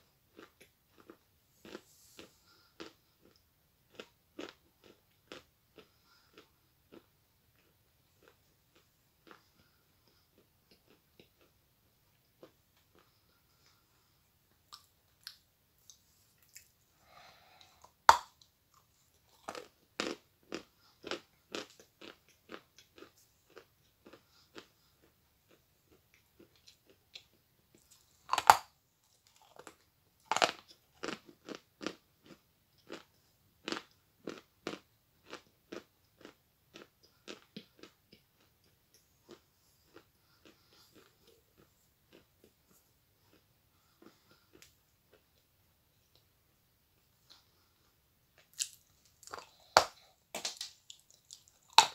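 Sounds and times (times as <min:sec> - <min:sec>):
teeth crunching chalk: 0:00.3 - 0:45.5, 0:48.4 - 0:51.9.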